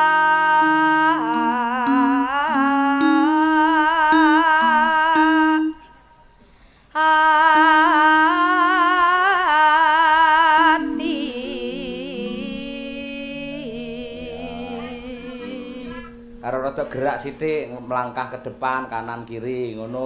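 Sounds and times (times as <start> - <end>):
woman singing with vibrato: 0.0 - 6.2, 6.9 - 16.5
lower held notes: 10.2 - 20.0.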